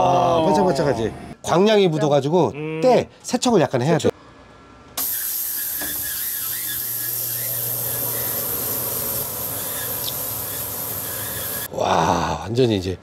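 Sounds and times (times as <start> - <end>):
steam cleaner hissing: 5.0 - 11.7.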